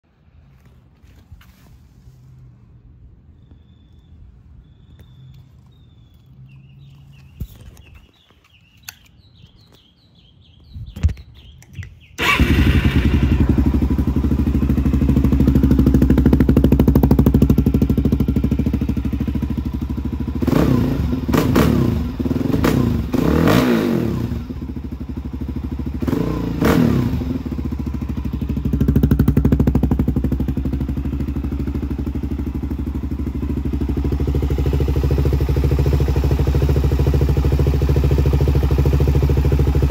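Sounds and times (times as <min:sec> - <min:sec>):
engine throttle blips: 0:11.5 - 0:39.9
motorcycle engine idling: 0:12.1 - 0:23.2, 0:24.0 - 0:39.9.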